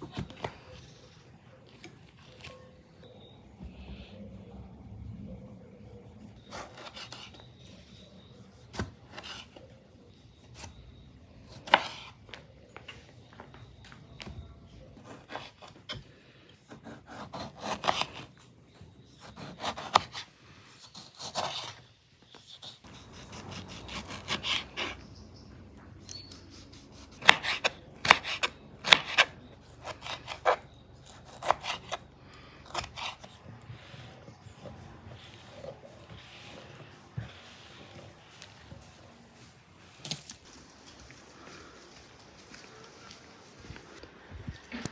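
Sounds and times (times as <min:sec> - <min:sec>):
knife slicing tomatoes: 0:06.4 - 0:07.7, 0:11.5 - 0:12.2, 0:16.7 - 0:25.1, 0:26.0 - 0:39.1.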